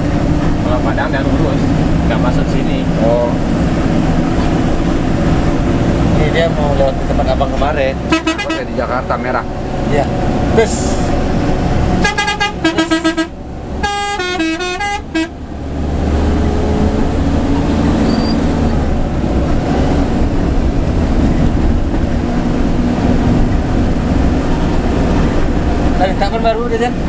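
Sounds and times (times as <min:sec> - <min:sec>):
diesel engine running: 0:00.0 - 0:27.0
road noise: 0:00.0 - 0:27.0
musical multi-tone air horn: 0:08.1 - 0:08.7, 0:12.0 - 0:15.4.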